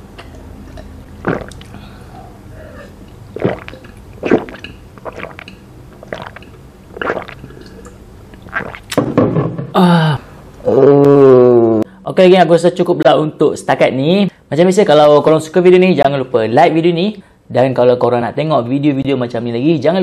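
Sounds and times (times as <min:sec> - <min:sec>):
person gulping juice: 0:00.2 - 0:09.1
person sighing ahh: 0:01.6 - 0:03.0, 0:09.8 - 0:12.0.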